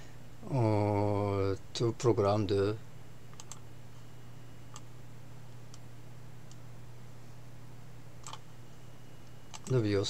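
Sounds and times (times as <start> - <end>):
low electrical hum: 0.0 - 10.0
computer mouse clicks: 3.3 - 3.6, 8.2 - 8.4, 9.2 - 9.8.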